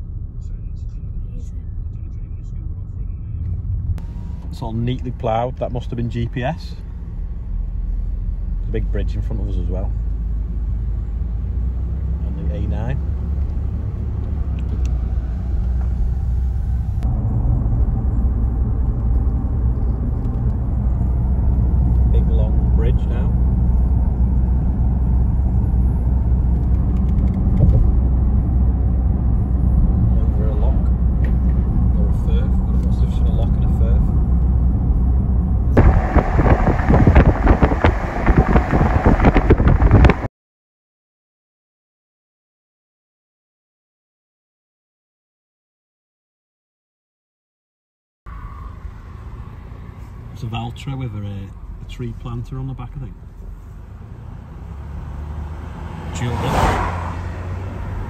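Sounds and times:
car cabin road noise: 0:00.0 - 0:40.3, 0:48.3 - 0:58.0
wind buffeting microphone: 0:35.7 - 0:40.3.

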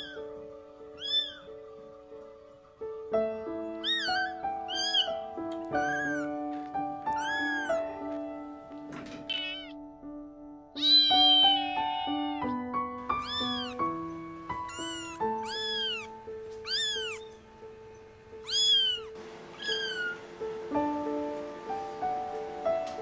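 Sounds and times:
kittens meowing: 0:00.0 - 0:00.3, 0:00.9 - 0:01.5, 0:03.3 - 0:08.2, 0:09.3 - 0:09.8, 0:10.8 - 0:17.5, 0:18.4 - 0:20.2
background music with held notes: 0:00.0 - 0:23.0.

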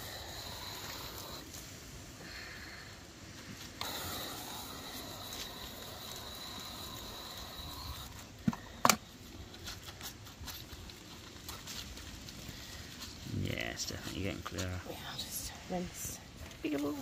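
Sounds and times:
hose nozzle spraying water: 0:03.8 - 0:08.2.

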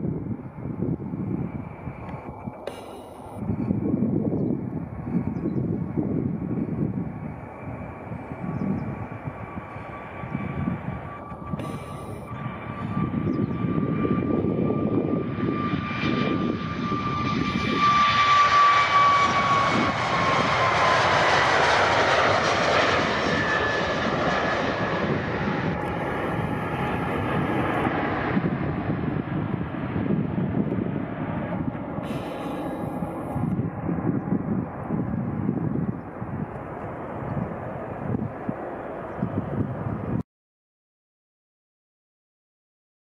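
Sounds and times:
jet engine roar with fan whine: 0:00.0 - 0:40.2.

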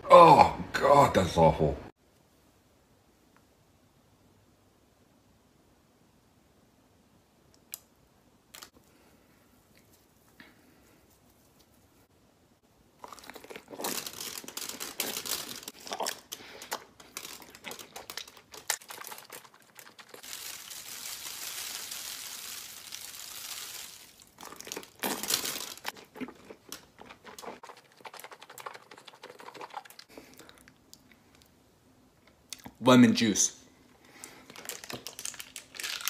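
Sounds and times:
crunching bites and chewing: 0:13.0 - 0:31.1.

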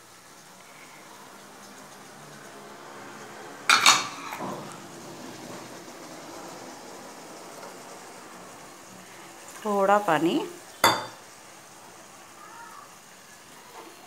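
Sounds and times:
faint steady hiss: 0:00.0 - 0:14.0
metal ladle clanking on pot: 0:10.8 - 0:11.2.

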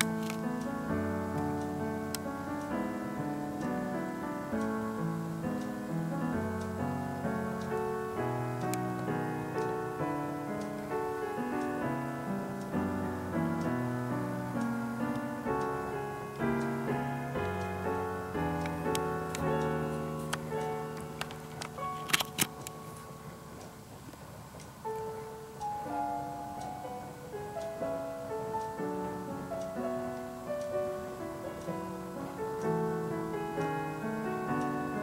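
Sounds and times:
slow piano music: 0:00.0 - 0:35.0.

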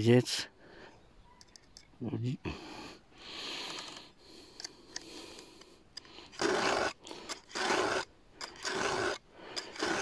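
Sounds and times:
file rasping on saw chain: 0:06.3 - 0:10.0.

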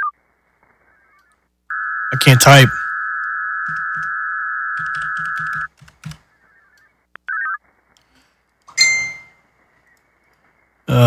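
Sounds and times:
digital modem data tones: 0:00.0 - 0:05.7
computer keyboard typing: 0:03.6 - 0:04.1, 0:04.8 - 0:06.2
sharp ringing electronic beep: 0:08.7 - 0:09.4.

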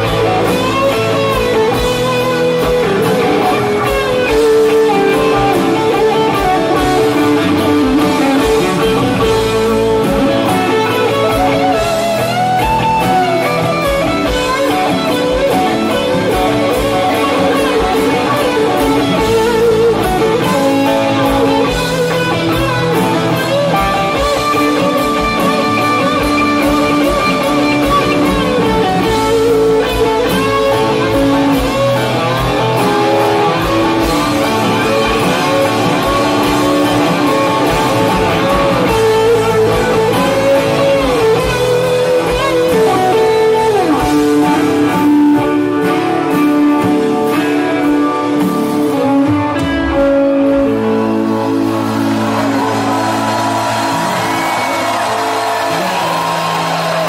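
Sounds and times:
guitar-led music: 0:00.0 - 0:57.0.

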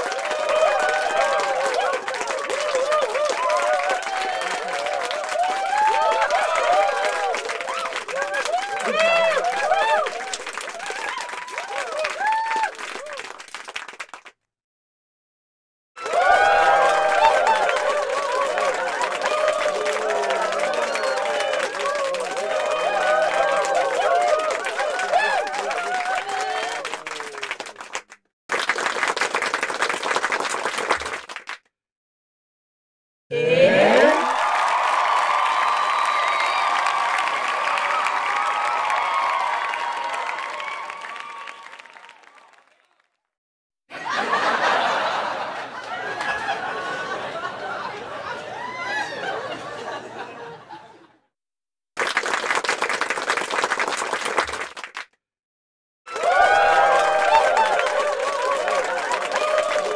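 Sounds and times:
crowd applause: 0:00.0 - 0:14.4, 0:16.0 - 0:31.6, 0:33.4 - 0:43.1, 0:43.9 - 0:51.0, 0:52.0 - 0:55.1, 0:56.1 - 0:59.9
crowd chattering and laughing: 0:43.9 - 0:51.2.

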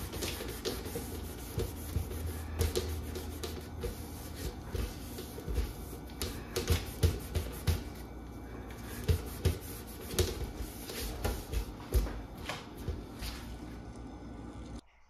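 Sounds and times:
toaster knocking and rubbing: 0:00.0 - 0:08.0, 0:09.0 - 0:12.0
steady low hum: 0:00.0 - 0:14.8.

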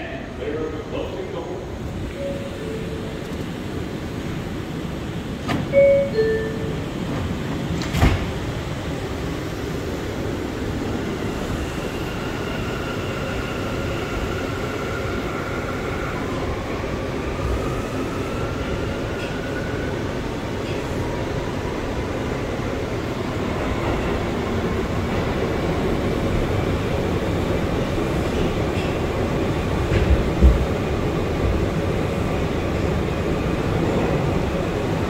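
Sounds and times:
train rumble: 0:00.0 - 0:35.0
train doors closing thump: 0:05.4 - 0:08.5, 0:29.8 - 0:30.8
two-note door chime: 0:05.8 - 0:06.8.

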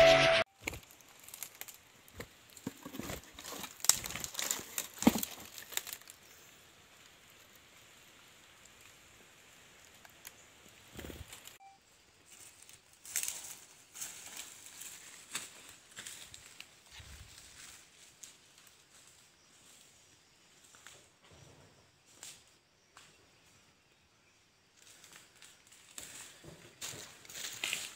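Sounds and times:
rustling and crinkling handling noise: 0:00.6 - 0:06.3.

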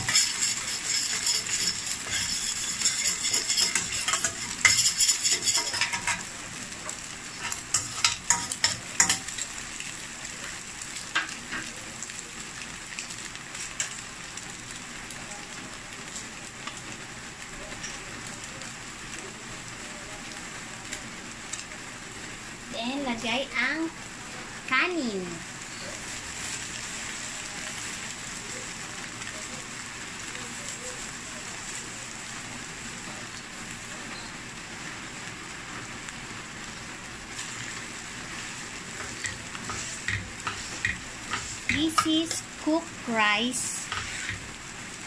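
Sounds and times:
metal spoon scraping pan: 0:00.0 - 0:06.3, 0:39.0 - 0:42.5, 0:43.8 - 0:44.4
egg sizzling in hot oil: 0:00.0 - 0:45.0
hot oil crackling and popping: 0:00.0 - 0:45.0.

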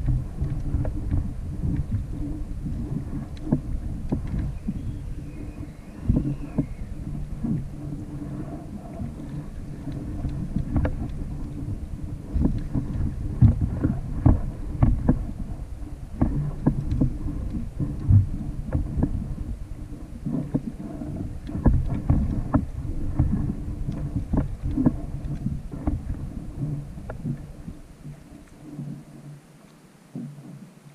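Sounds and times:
knocks and clicks: 0:00.0 - 0:04.8, 0:16.1 - 0:19.6
water slapping against hull: 0:00.0 - 0:30.6
wind rumbling on microphone: 0:00.0 - 0:30.9.

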